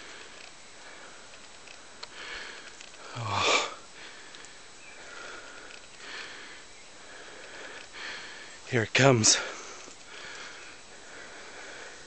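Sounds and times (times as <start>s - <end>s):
man breathing heavily: 0.0s - 12.0s
man exclaiming breathily: 3.1s - 3.8s.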